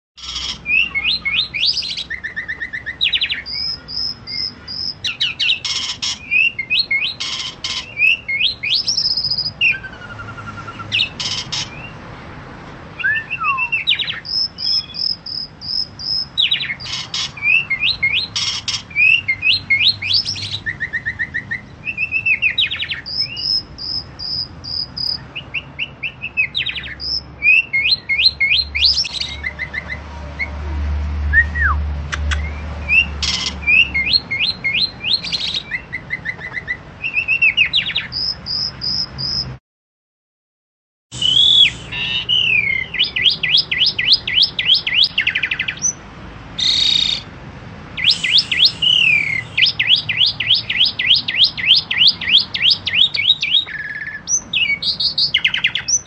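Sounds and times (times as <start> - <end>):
starling singing varied song: 0.2 - 12.1, 13.0 - 30.0, 41.1 - 56.0.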